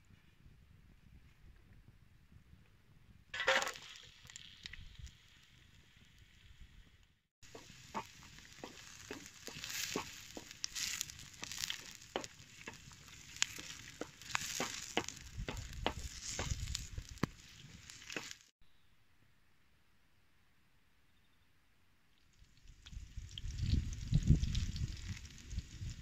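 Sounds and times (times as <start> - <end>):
onion sizzling in pan: 3.4 - 18.5.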